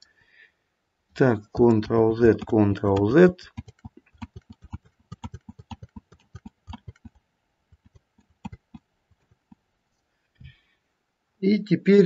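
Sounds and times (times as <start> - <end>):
computer keyboard clicks: 2.3 - 7.2.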